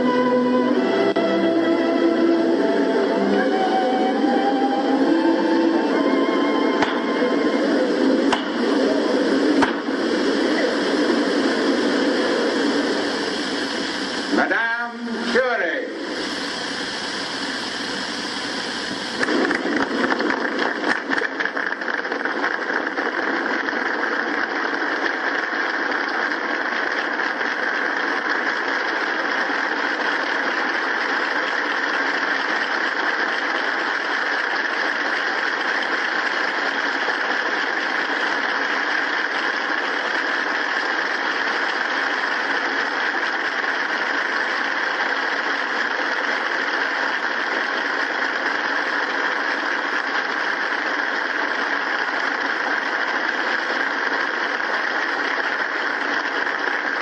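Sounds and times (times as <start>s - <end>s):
crowd applauding: 19.2s - 57.0s.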